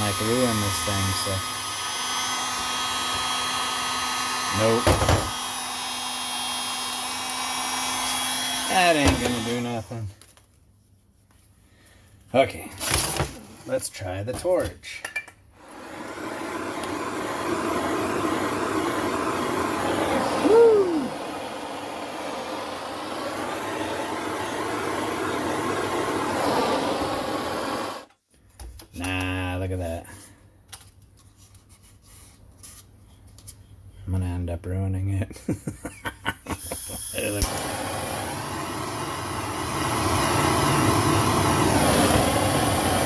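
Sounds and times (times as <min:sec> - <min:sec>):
propane torch hissing: 0:00.0 - 0:03.2, 0:04.2 - 0:10.0, 0:15.6 - 0:28.1, 0:36.6 - 0:43.0.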